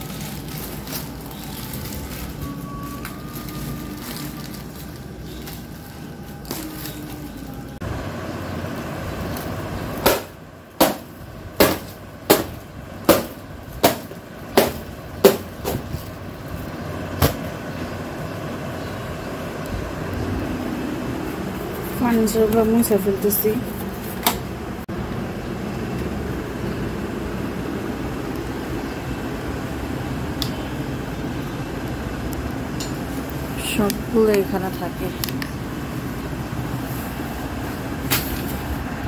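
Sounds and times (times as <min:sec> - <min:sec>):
steady background noise: 0:00.0 - 0:39.0.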